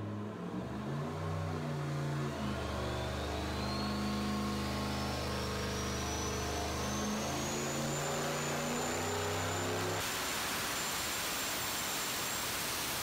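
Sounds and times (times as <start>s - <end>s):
engine running on dyno: 0.0s - 10.0s
turbo whistle rising: 2.3s - 10.0s.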